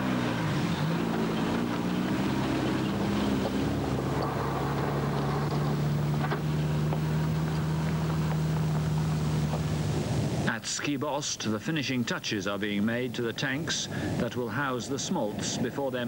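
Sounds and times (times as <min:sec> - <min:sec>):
pickup truck engine accelerating: 0:00.0 - 0:10.5.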